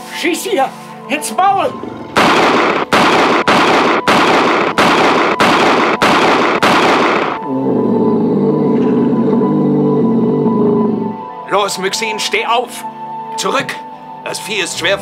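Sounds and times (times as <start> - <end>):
music with low held notes: 0.0 - 3.4, 7.4 - 15.0
gunshots in quick succession: 2.2 - 7.4.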